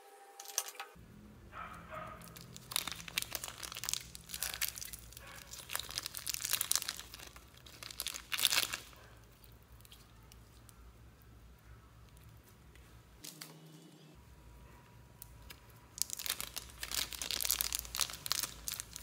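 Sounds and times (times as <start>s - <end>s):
plastic wrapping crinkling: 1.9s - 10.8s, 12.0s - 13.7s, 15.2s - 19.0s.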